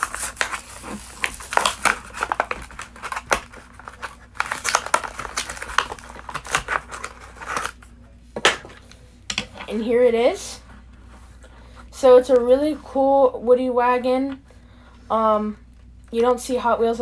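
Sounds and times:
plastic cracking: 0.0 - 7.8
packaging crinkling and tearing: 0.0 - 7.9.

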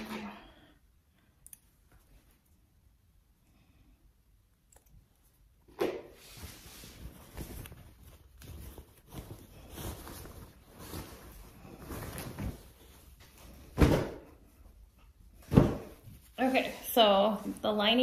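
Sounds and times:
fabric bag rustling: 6.2 - 13.8.

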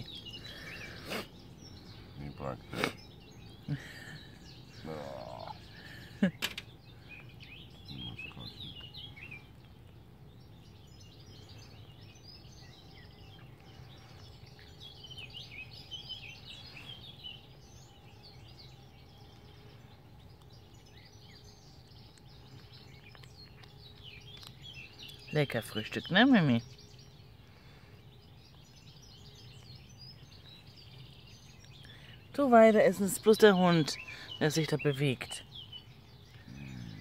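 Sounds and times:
small birds chirping: 0.0 - 37.0
cat chewing crunches: 21.6 - 25.3.

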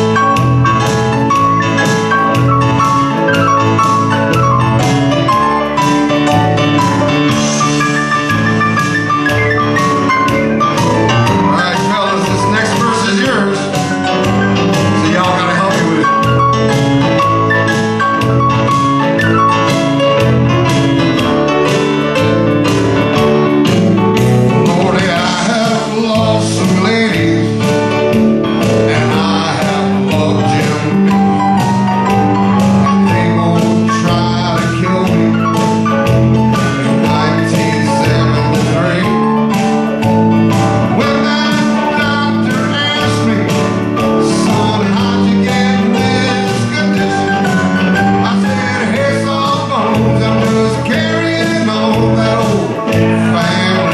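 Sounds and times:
guitar: 0.0 - 53.9
keyboard: 0.0 - 53.9
man singing: 5.2 - 18.2, 24.5 - 31.6, 32.4 - 53.9.

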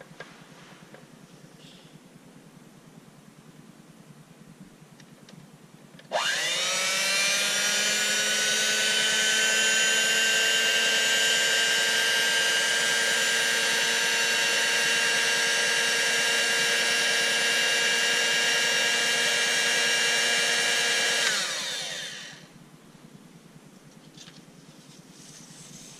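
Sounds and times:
electric hand mixer whining: 6.1 - 22.5.

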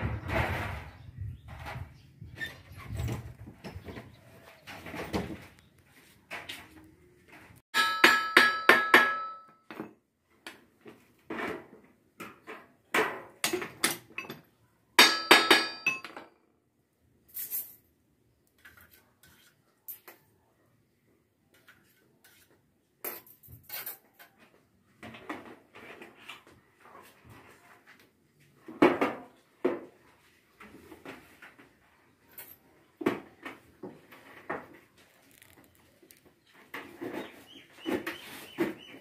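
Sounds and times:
metallic ringing: 7.8 - 9.6.

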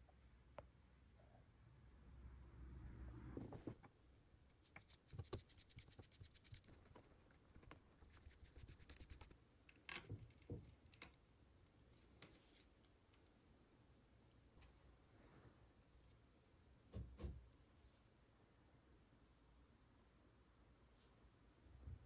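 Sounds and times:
small handling sounds: 4.5 - 13.4.

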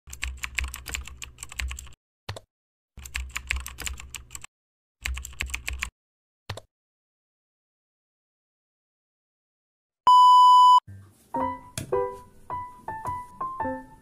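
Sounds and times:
computer keyboard typing: 0.1 - 2.4, 3.0 - 5.9.

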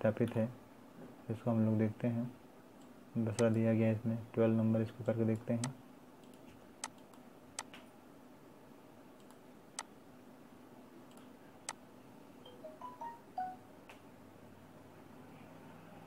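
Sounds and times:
low steady hum: 0.0 - 16.0
computer mouse clicks: 5.0 - 7.9, 9.2 - 9.9, 11.1 - 11.8.

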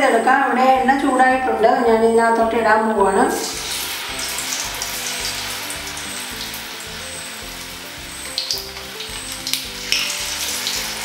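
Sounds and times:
food deep-frying in hot oil: 3.2 - 11.0
sharp crackles of frying: 3.3 - 11.0.

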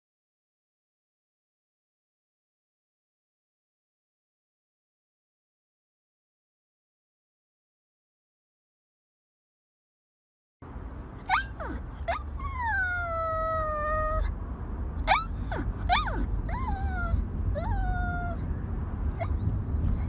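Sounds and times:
low steady rumble: 10.6 - 20.0
dog whining and yelping: 11.2 - 14.3, 15.0 - 18.5, 19.2 - 20.0.

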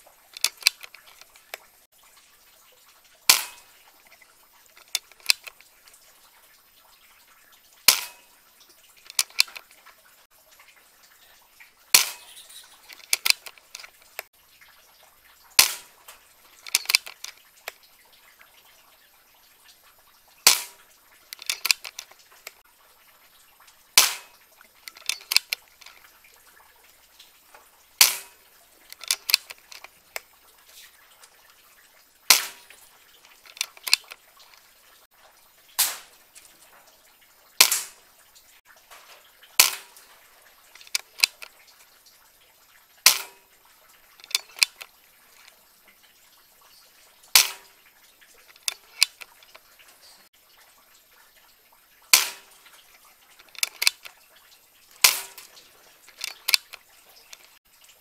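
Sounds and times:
quiet clicks: 0.0 - 1.8, 3.3 - 6.5, 8.9 - 10.0, 11.9 - 14.3, 15.6 - 18.7, 20.4 - 22.6, 23.7 - 31.6, 32.3 - 34.7, 38.9 - 41.9, 44.2 - 45.6, 48.4 - 50.3, 52.1 - 54.2, 54.9 - 57.6
air rifle shots: 3.3 - 3.6, 28.0 - 28.3, 37.6 - 37.9, 39.6 - 39.9.

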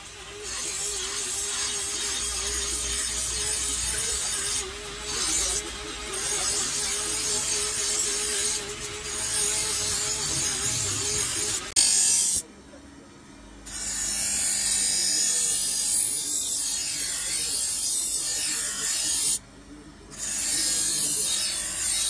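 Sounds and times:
grinding wheel grinding steel blade: 0.0 - 12.4, 13.7 - 19.4, 20.1 - 22.0
grinding wheel humming: 0.3 - 12.4.

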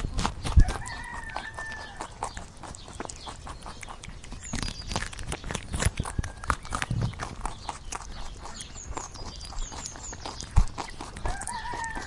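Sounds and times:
rooster crowing: 0.6 - 2.1, 11.2 - 12.0.

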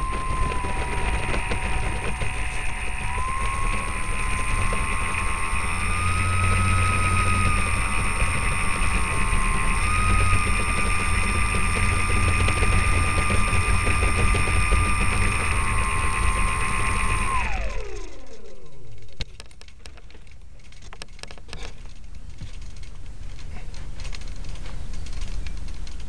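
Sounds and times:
clicks and rustling handling: 0.0 - 5.8, 17.8 - 26.0
model plane motor whine: 0.0 - 26.0.

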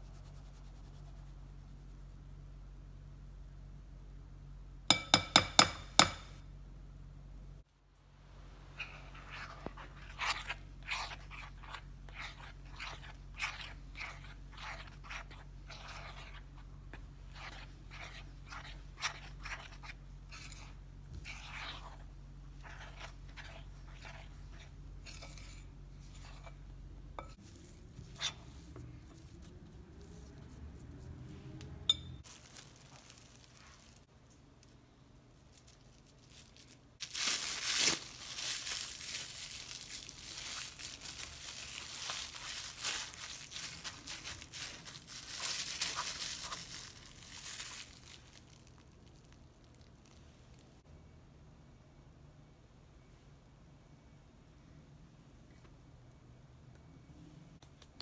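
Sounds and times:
spoon scraping dough in glass bowl: 8.8 - 29.3
plastic cling wrap crinkling: 32.2 - 50.7.

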